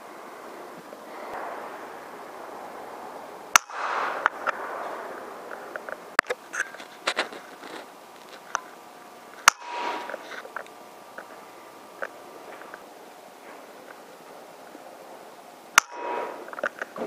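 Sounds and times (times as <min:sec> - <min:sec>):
air rifle firing: 0:03.2 - 0:05.5, 0:09.5 - 0:10.2, 0:15.8 - 0:16.5.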